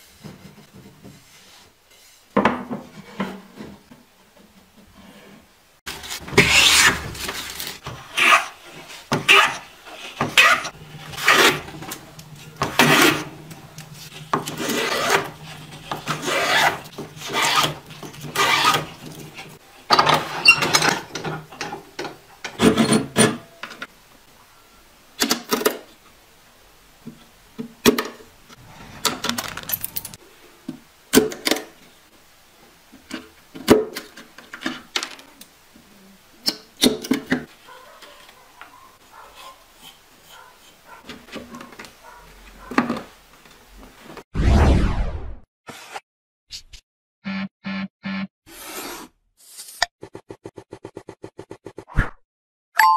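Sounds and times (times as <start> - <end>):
hand saw cutting wood: 5.9 - 11.7, 12.6 - 13.3, 14.3 - 19.5.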